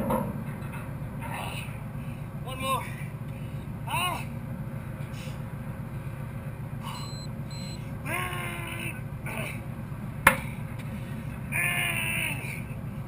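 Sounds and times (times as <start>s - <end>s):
steady low hum: 0.0s - 13.0s
short electronic beeps: 6.8s - 7.9s
man groaning: 8.0s - 9.6s, 11.5s - 12.7s.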